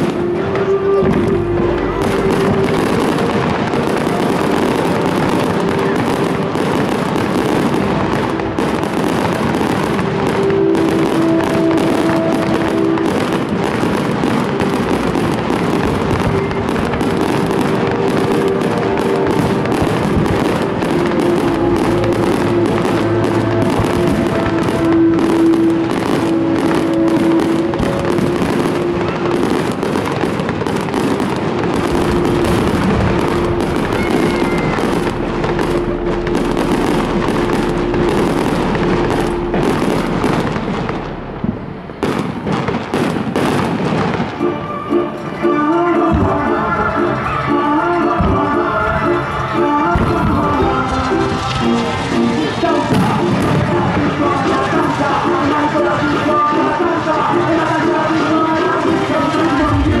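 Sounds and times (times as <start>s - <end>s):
fireworks bursting and crackling: 0.0s - 60.0s
music with sustained notes: 0.0s - 60.0s.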